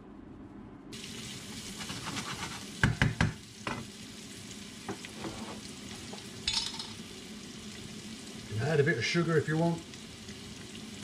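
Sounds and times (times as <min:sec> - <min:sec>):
onions sizzling in frying pan: 0:00.9 - 0:11.0
wooden spoon knocking pan: 0:02.8 - 0:03.9.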